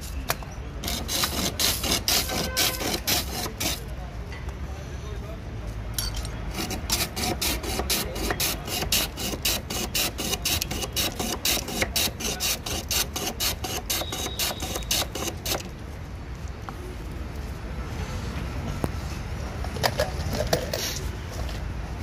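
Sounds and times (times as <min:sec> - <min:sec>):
ice scraped across a blade: 0:00.8 - 0:03.9, 0:06.5 - 0:15.7.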